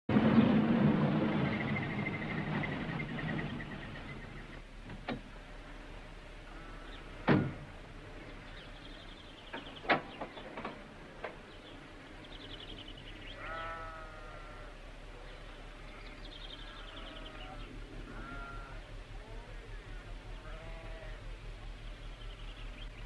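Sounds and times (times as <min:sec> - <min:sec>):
sharp knocks: 0:07.2 - 0:07.7
high chirping trills: 0:15.1 - 0:23.0.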